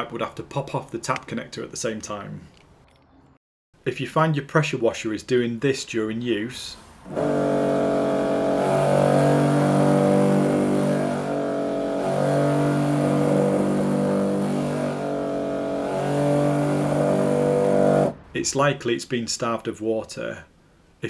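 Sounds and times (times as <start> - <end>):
person talking: 0.0 - 2.5
pressure washer humming unevenly: 7.1 - 18.2.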